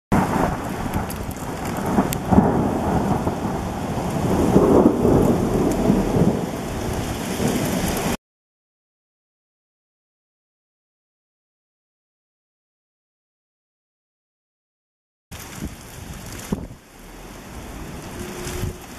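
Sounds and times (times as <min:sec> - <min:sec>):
thunder rumbling: 0:00.1 - 0:08.2, 0:15.3 - 0:18.9
hail and rain hissing: 0:00.2 - 0:08.2, 0:15.3 - 0:18.9.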